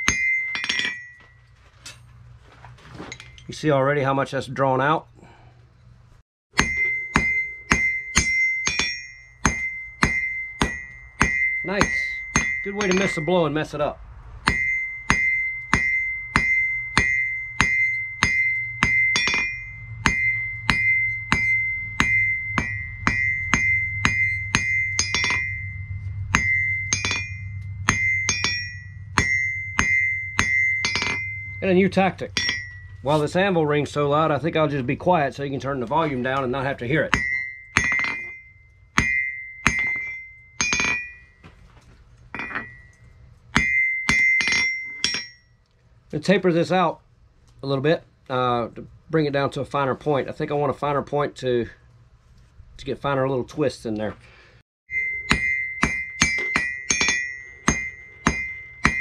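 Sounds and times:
hammer blows on anvil ringing: 0:00.0 - 0:01.4, 0:06.5 - 0:13.8, 0:14.4 - 0:34.0, 0:35.9 - 0:41.5, 0:42.4 - 0:45.5, 0:54.9 - 0:59.0.

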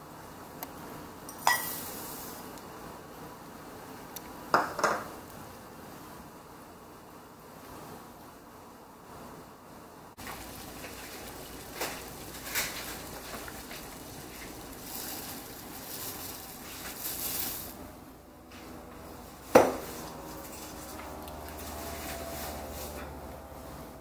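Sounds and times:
dishware clanking against pot: 0:01.3 - 0:01.8
oats poured into water: 0:10.2 - 0:17.8
boiling water bubbling: 0:10.2 - 0:18.0, 0:19.3 - 0:23.2.

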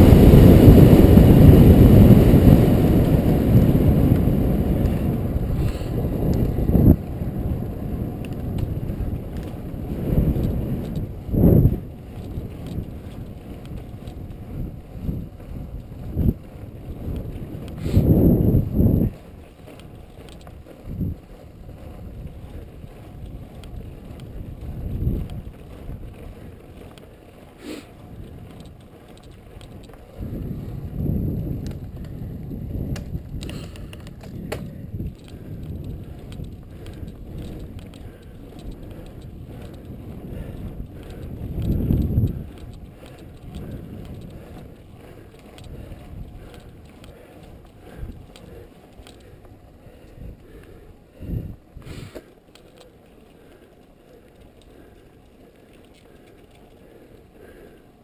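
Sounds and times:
wind rushing over microphone: 0:00.0 - 0:52.8
tyre rumble on asphalt: 0:00.0 - 0:58.0.

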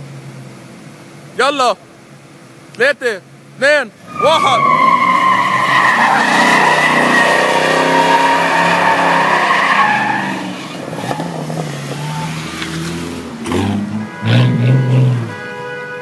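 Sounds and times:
tires squealing: 0:04.0 - 0:15.5
car engine revving: 0:04.0 - 0:15.8.

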